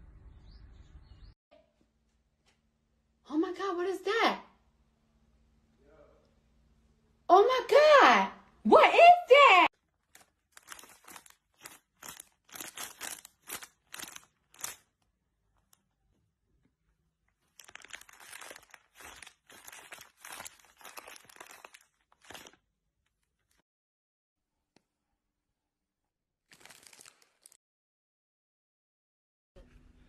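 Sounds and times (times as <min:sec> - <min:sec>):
plastic bags crinkling: 0:09.8 - 0:15.0, 0:17.3 - 0:23.6, 0:26.5 - 0:27.6.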